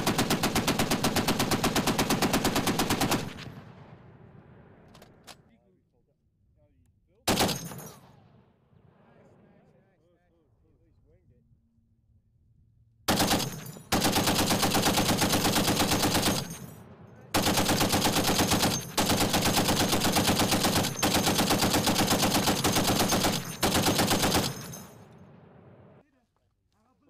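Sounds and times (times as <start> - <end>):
heavy machine gun firing: 0.0 - 4.1, 7.3 - 8.1, 13.1 - 26.0
gunfire echo: 0.0 - 5.3, 7.3 - 9.6, 13.1 - 26.0.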